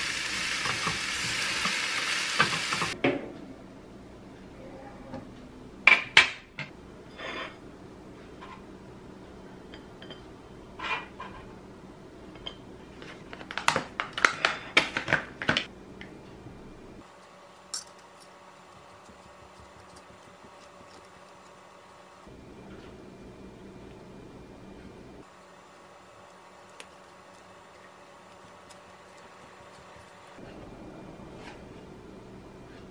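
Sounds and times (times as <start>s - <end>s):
metal tongs clinking on tray: 17.7s - 18.4s.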